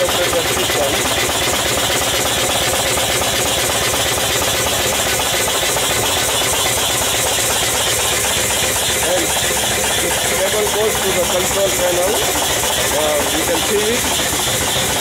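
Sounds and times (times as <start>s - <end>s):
steam engine beating: 0.0s - 15.0s
steam hissing: 0.0s - 15.0s.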